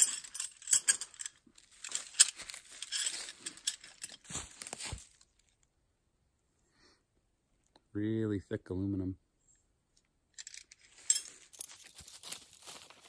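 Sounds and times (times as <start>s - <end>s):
metal tent stakes clinking: 0.0s - 5.1s, 10.4s - 12.4s
rustling: 0.0s - 5.7s, 10.4s - 13.0s.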